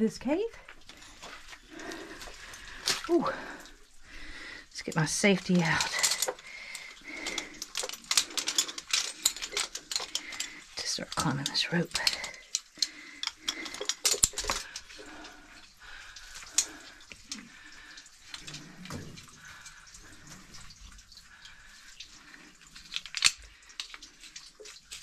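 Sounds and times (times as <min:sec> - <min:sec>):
climbing gear knocking and clicking: 0:05.0 - 0:15.4.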